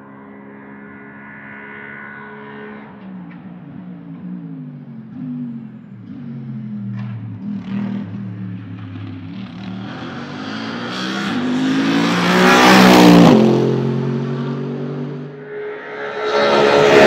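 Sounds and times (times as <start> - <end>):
race car engine passing: 0.0 - 3.7, 9.4 - 17.0.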